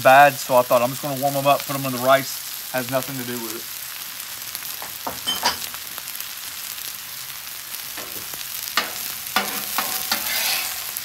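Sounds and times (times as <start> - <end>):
food sizzling on a griddle: 0.0 - 11.0
spatula scraping griddle: 8.0 - 11.0.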